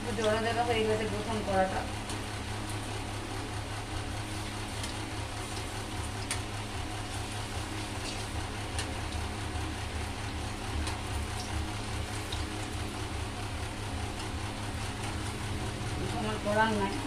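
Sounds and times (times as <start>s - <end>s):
oil sizzling: 4.1s - 15.4s.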